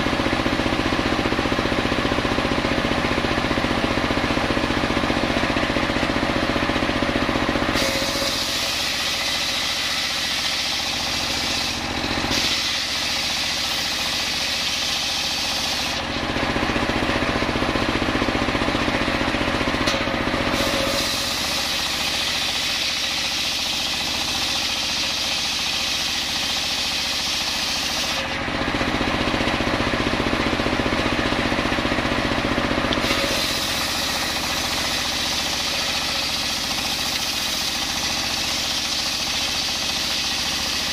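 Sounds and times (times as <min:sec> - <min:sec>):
engine running: 0:00.0 - 0:40.9
saw blade hissing in wood: 0:07.8 - 0:16.1, 0:33.0 - 0:40.9.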